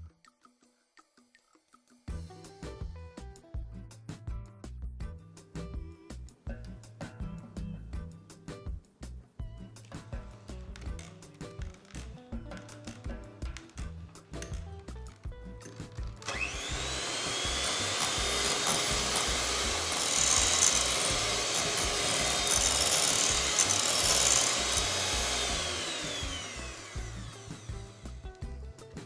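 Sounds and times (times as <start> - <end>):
electric hand mixer whirring: 16.2 - 28.5.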